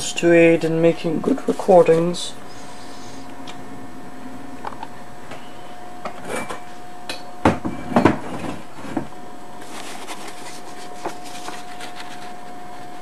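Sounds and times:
faint steady whine: 0.0s - 13.0s
paper rustling: 9.6s - 13.0s.

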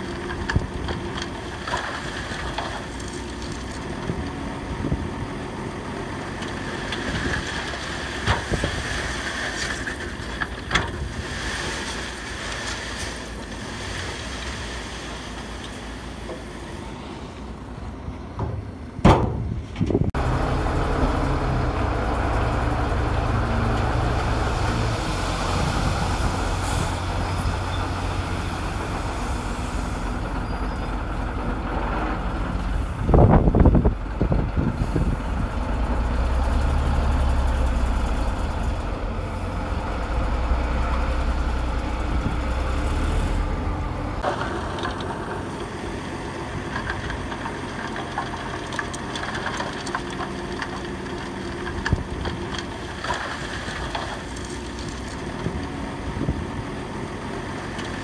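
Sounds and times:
bulldozer diesel engine running: 0.0s - 58.0s
loud sudden clattering: 18.4s - 20.1s.

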